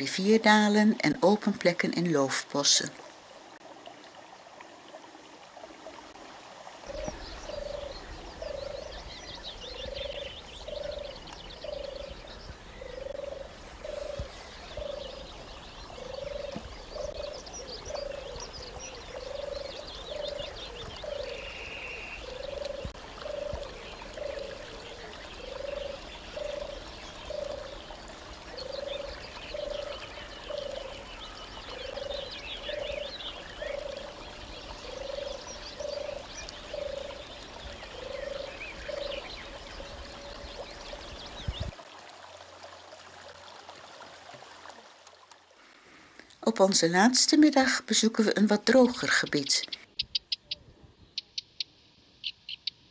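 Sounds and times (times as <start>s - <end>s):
frogs croaking: 6.8s - 41.4s, 47.0s - 52.9s.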